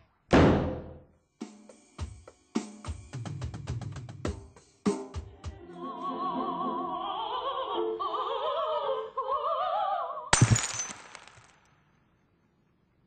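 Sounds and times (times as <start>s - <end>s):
operatic voice singing: 5.4s - 10.3s.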